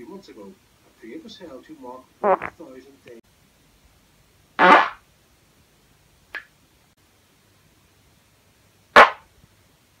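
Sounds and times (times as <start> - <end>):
short sharp fart: 2.2 - 2.6, 4.6 - 5.0, 9.0 - 9.3.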